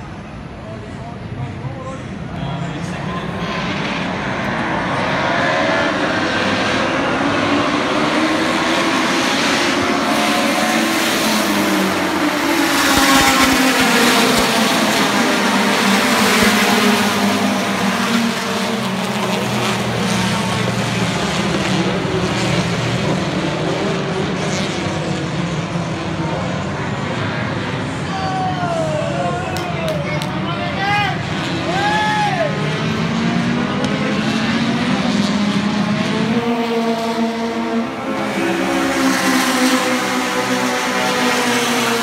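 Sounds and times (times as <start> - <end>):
race cars passing at high revs: 0.0 - 42.0.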